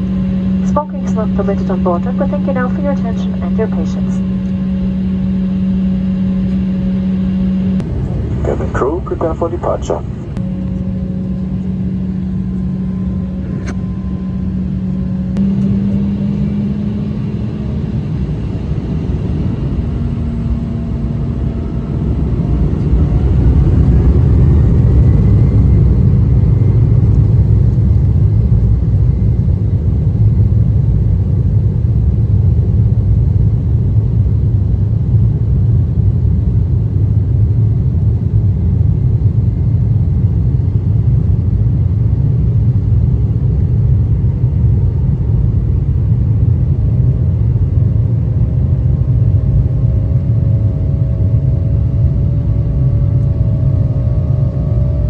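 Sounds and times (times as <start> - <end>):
jet engines spooling up: 0.0 - 28.0
rising engine whine: 0.0 - 55.0.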